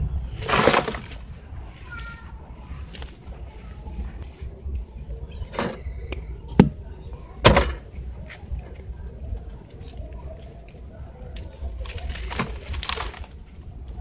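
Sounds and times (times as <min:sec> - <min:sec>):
sand-cement ball cracking: 0:00.0 - 0:01.4, 0:05.5 - 0:14.0
gritty crumbling clicks: 0:00.3 - 0:01.3, 0:05.4 - 0:14.0.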